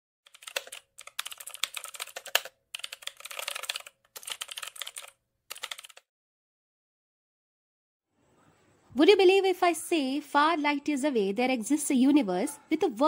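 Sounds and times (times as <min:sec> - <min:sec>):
computer keyboard key clicks: 0:00.3 - 0:06.0.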